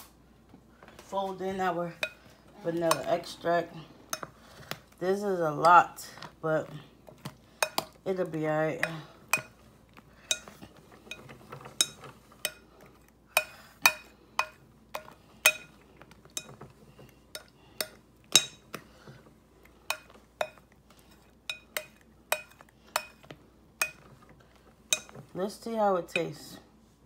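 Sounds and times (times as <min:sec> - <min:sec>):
utensil clinking against bowl: 0:10.2 - 0:18.9, 0:19.8 - 0:25.3.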